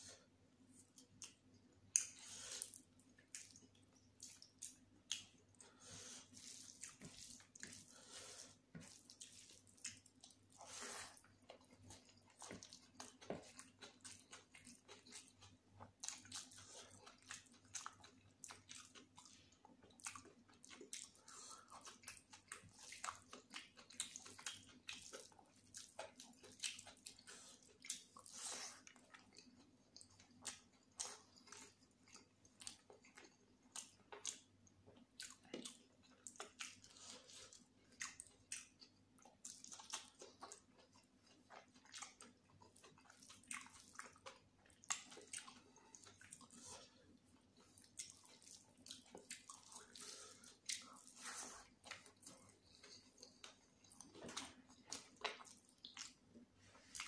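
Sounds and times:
close chewing with wet smacks: 0:00.6 - 0:57.0.

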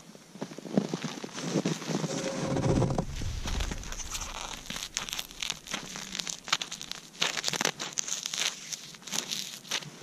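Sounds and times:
low handling rumble: 0:02.0 - 0:07.6
frozen mittens crinkling: 0:03.4 - 0:10.0.

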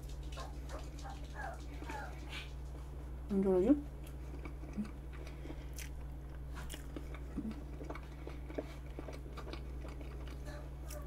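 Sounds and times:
low electrical hum: 0:00.0 - 0:11.0
person chewing: 0:04.0 - 0:11.0.

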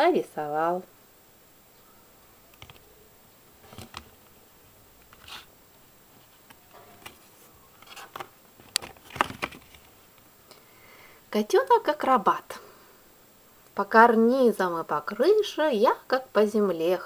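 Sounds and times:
board book pages turning: 0:03.6 - 0:04.4, 0:05.0 - 0:05.5, 0:06.1 - 0:10.0.

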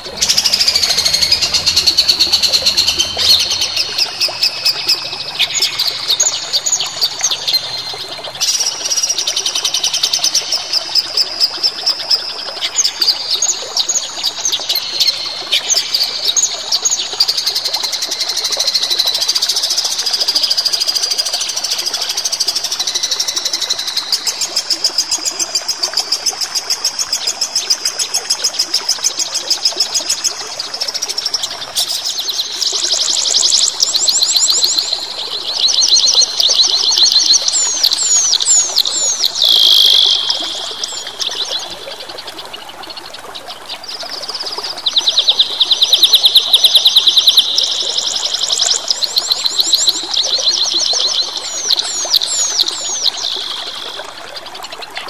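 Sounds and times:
songbird singing: 0:00.0 - 0:10.7, 0:31.6 - 0:41.8, 0:44.8 - 0:54.1.

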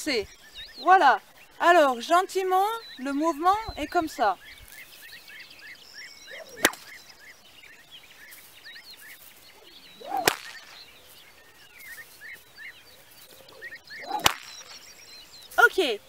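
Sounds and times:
whip swishing through air: 0:06.4 - 0:07.0, 0:10.0 - 0:10.9, 0:14.0 - 0:14.9
whip cracking: 0:06.5 - 0:07.0, 0:10.0 - 0:10.9, 0:14.0 - 0:14.9.

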